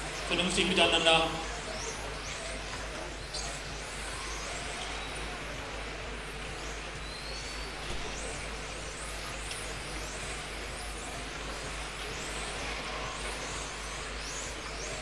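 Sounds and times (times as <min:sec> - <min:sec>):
electric motors whining: 0:00.0 - 0:15.0
hall noise: 0:00.0 - 0:15.0.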